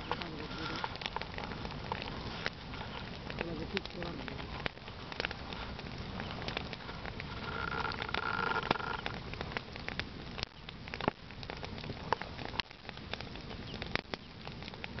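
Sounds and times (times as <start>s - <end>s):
hiss of flame: 0.0s - 8.0s
fire crackling and popping: 0.0s - 15.0s.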